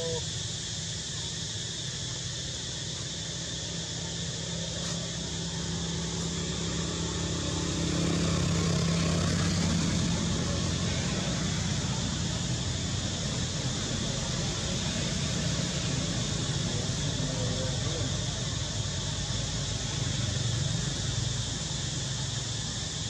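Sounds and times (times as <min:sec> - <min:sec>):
distant engine hum: 0:00.0 - 0:23.0
outdoor background hiss: 0:00.0 - 0:23.0.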